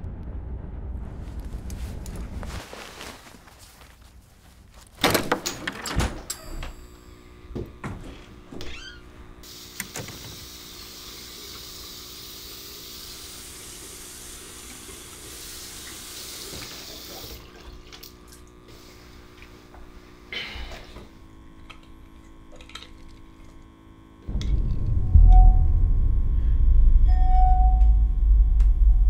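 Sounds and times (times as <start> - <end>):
tap water running into sink: 13.5 - 18.5
brief louder noise: 24.3 - 29.0.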